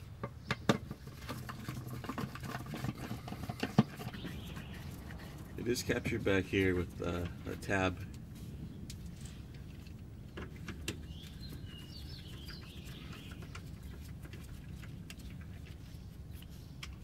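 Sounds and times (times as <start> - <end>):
bird chirping: 3.5 - 6.9, 10.2 - 17.0
steady low rumble: 4.2 - 17.0.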